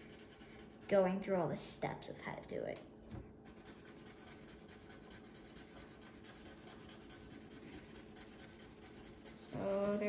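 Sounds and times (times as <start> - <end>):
marker scratching on paper: 0.0 - 1.3, 3.4 - 10.0.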